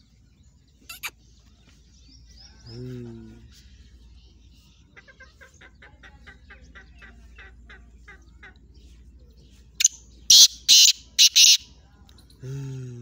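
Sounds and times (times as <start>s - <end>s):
bird loud harsh call: 10.3s - 11.6s.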